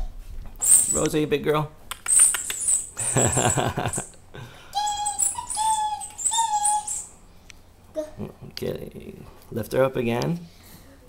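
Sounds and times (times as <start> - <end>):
rustling: 0.3 - 1.3, 1.9 - 4.1
rubber ball squeaking: 0.6 - 1.2, 1.9 - 4.1, 4.8 - 7.2.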